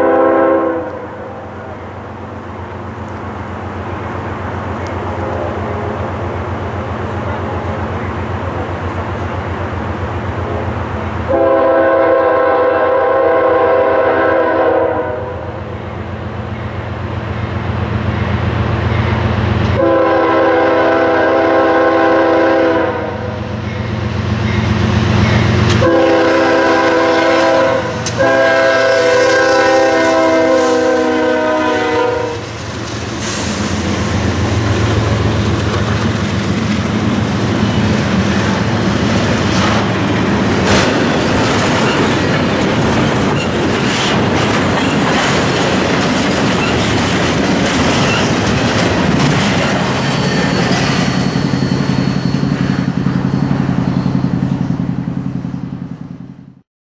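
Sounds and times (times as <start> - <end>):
locomotive air horn: 0.0 - 1.8, 11.3 - 15.6, 19.8 - 23.5, 25.7 - 32.6
train wheels clacking on rails: 23.5 - 55.5.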